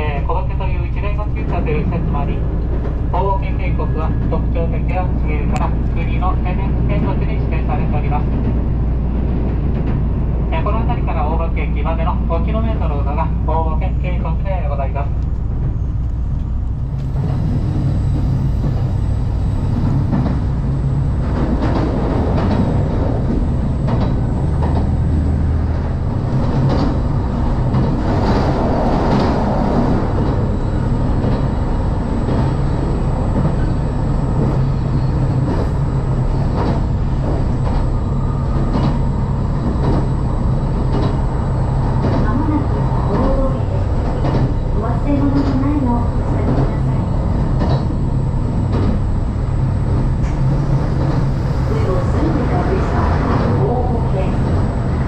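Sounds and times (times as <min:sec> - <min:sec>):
train wheels rumbling on rail: 0:00.0 - 0:55.0
diesel engine drone: 0:12.9 - 0:55.0.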